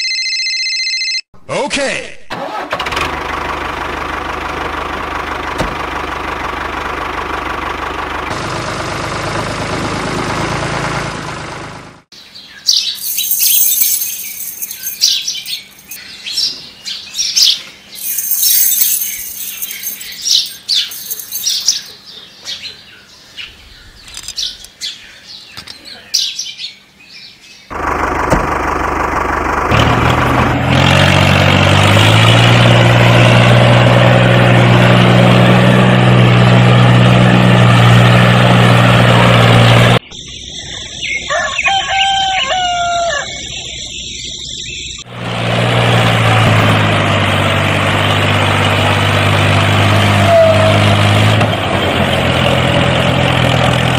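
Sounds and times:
small birds chirping: 12.2s - 27.7s, 40.0s - 45.1s
engine drone: 27.7s - 41.3s, 42.3s - 53.9s
rooster crowing: 41.2s - 43.6s.

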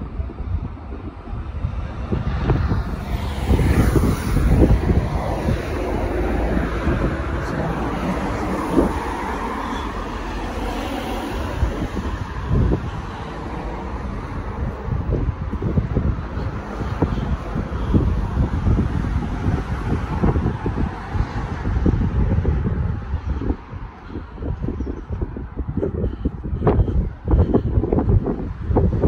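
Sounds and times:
cars going by: 0.0s - 29.0s
wind buffeting microphone: 0.0s - 29.0s.

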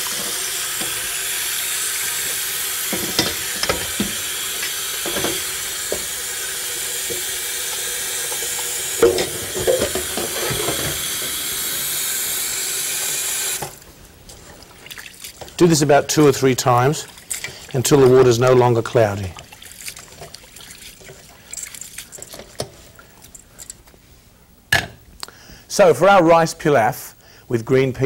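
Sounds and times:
faucet pouring water into metal bowl: 0.0s - 13.6s, 19.4s - 22.3s.

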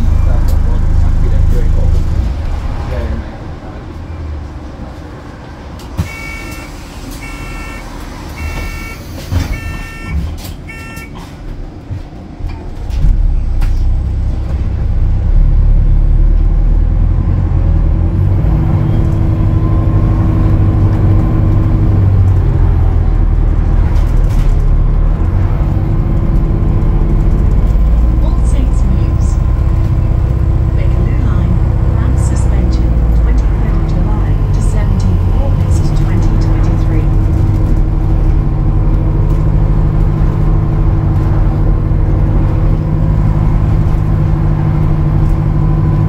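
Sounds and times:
bus engine running: 0.0s - 46.0s
short electronic beeps: 6.1s - 7.8s, 8.4s - 11.2s.

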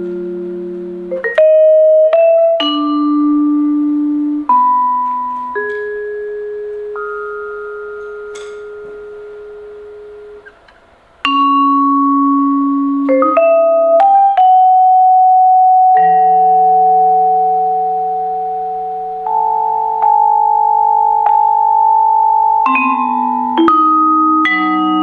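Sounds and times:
vibraphone notes ringing: 1.1s - 10.6s, 11.2s - 25.0s.

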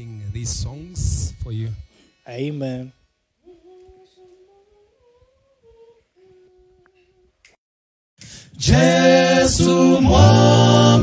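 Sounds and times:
soft humming of held notes: 0.0s - 7.4s
male a cappella group singing: 8.5s - 11.0s.

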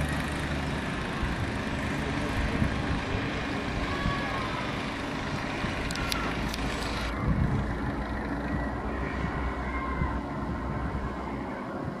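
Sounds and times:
paramotor engine drone: 0.0s - 12.0s.

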